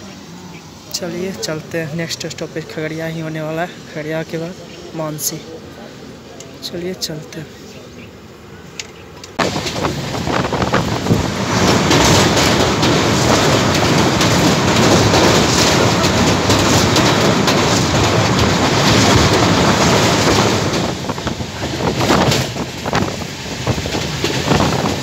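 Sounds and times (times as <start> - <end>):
train wheels rumbling on bridge: 8.7 - 25.0
wind buffeting microphone: 9.4 - 25.0.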